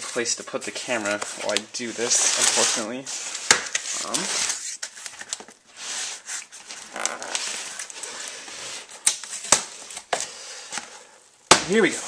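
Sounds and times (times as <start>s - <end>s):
cardboard rubbing and scraping: 0.0s - 4.8s.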